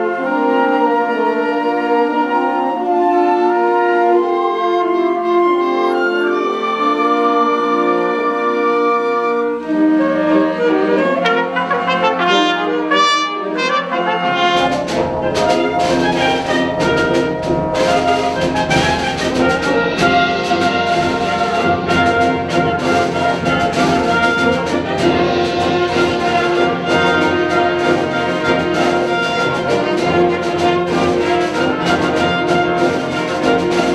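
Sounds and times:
wind band playing: 0.0 - 33.9
percussion strikes: 11.2 - 33.9.

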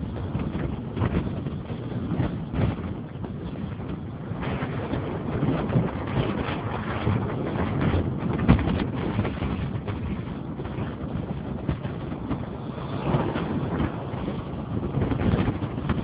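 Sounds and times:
wind buffeting microphone: 0.0 - 16.0
road and traffic noise: 10.4 - 16.0.

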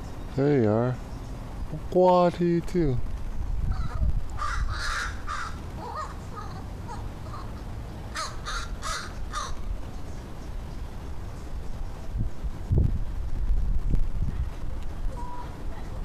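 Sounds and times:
wind rumble on microphone: 1.4 - 7.4, 8.4 - 16.0
crows calling: 3.7 - 9.8.

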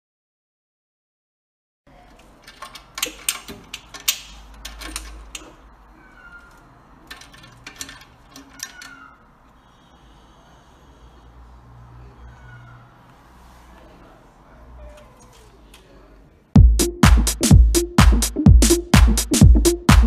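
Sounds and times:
cage door latch rattling: 2.3 - 5.7, 6.5 - 9.2.

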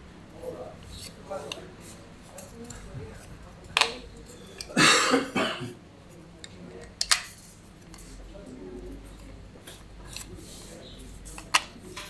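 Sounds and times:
person coughing: 4.7 - 5.8.

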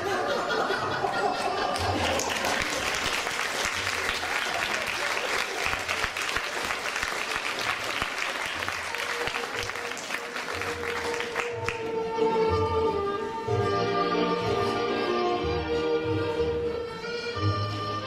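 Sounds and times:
audience applauding: 1.1 - 11.9
music: 6.2 - 18.0.

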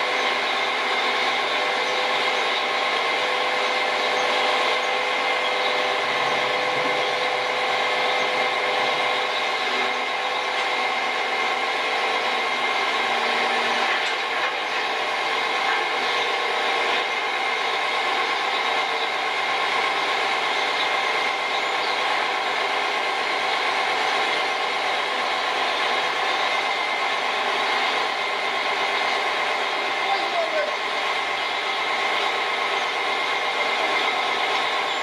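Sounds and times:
crane engine running: 0.0 - 35.0
steady whine: 0.0 - 35.0.

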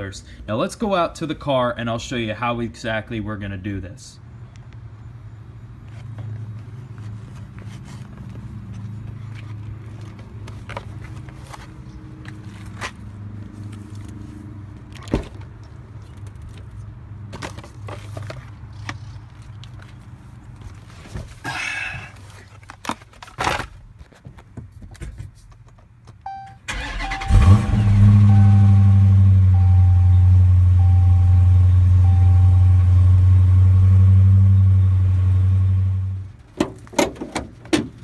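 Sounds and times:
car door opening and shutting: 14.9 - 15.5, 36.5 - 38.0
car engine starting and idling: 26.3 - 38.0.

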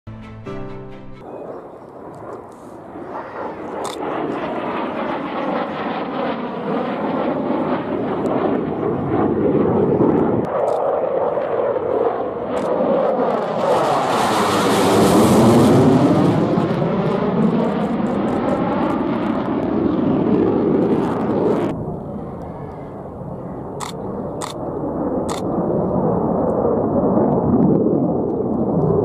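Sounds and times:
jet fighter roar: 1.2 - 29.0.

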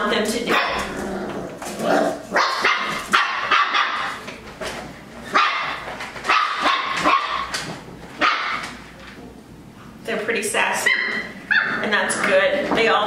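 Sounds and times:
puppies barking: 0.5 - 1.0, 1.8 - 4.2, 5.2 - 8.8, 10.8 - 11.9.

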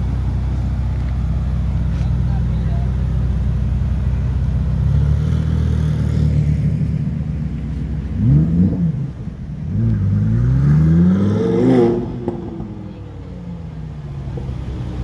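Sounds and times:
car engines idling: 0.0 - 10.4, 11.8 - 15.0
car accelerating away: 4.7 - 15.0
engine revving: 8.2 - 13.0.

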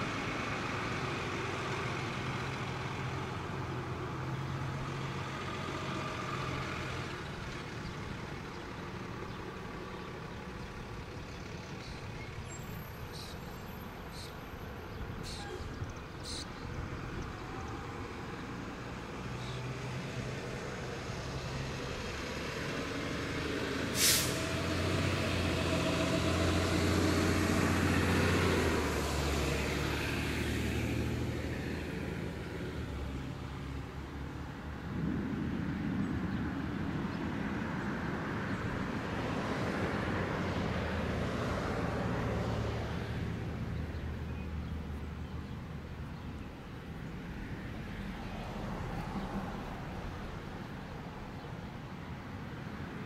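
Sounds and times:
heavy truck rumble: 0.0 - 53.0
road traffic: 0.0 - 53.0
air brake hiss: 23.9 - 24.6.

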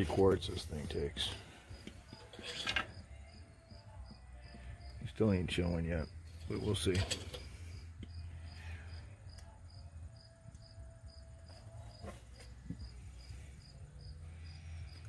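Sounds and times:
crickets chirping: 6.0 - 15.0.

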